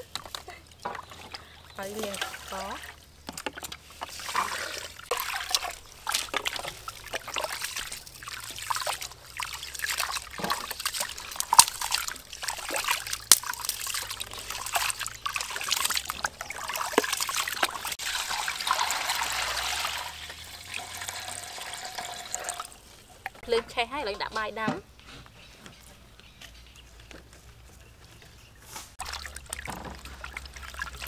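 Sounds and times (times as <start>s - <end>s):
water poured into metal pot: 3.6s - 22.8s, 29.0s - 31.0s
water pouring into basin: 3.8s - 22.8s, 29.0s - 31.0s.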